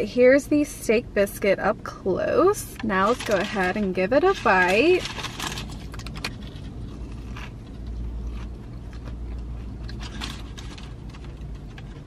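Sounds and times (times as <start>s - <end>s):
steady low hum: 0.0s - 12.0s
close-up chewing with crunches: 5.0s - 12.0s.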